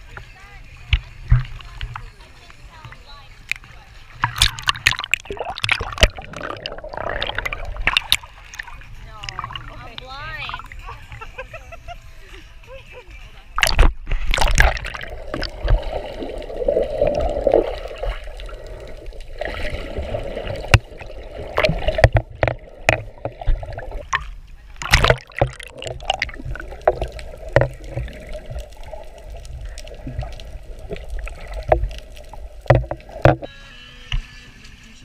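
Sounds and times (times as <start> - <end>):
underwater rumble and bubbles: 0.0 - 11.6, 13.6 - 33.5
sharp clicks and knocks: 21.6 - 28.6, 32.7 - 33.5.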